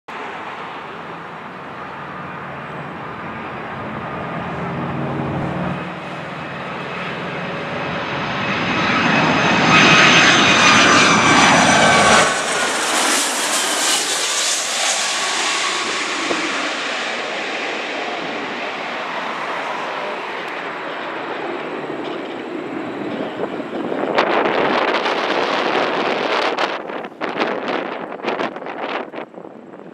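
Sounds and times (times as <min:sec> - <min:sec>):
jet airliner passing overhead: 0:00.1 - 0:29.9
engine whine falling in pitch: 0:03.0 - 0:19.0.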